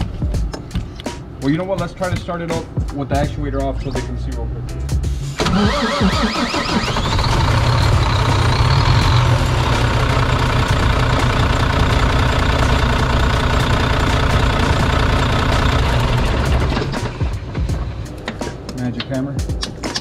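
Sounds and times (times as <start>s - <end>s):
diesel engine idling: 5.5s - 18.4s.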